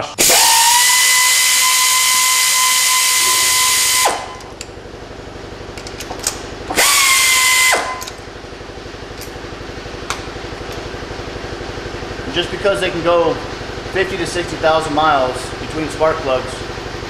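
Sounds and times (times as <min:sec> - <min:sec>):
air ratchet whine and hiss: 0:00.1 - 0:04.7, 0:06.7 - 0:08.2.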